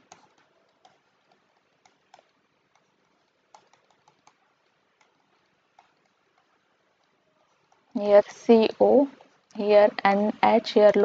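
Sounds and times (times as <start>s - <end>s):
pen clicks and taps: 0.0s - 7.9s.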